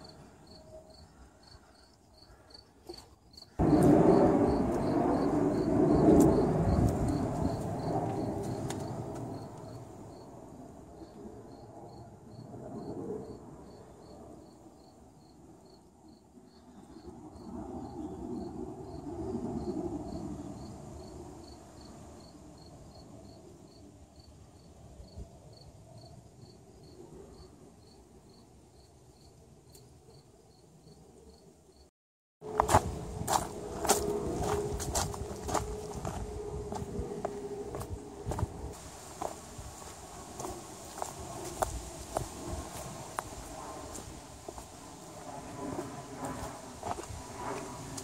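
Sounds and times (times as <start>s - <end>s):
cricket chirping: 0.0s - 31.9s.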